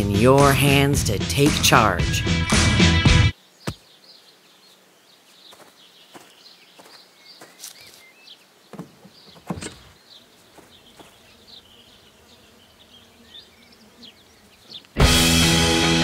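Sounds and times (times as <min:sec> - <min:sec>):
high chirps of small birds: 0:03.3 - 0:15.0
soft thuds: 0:08.7 - 0:10.0.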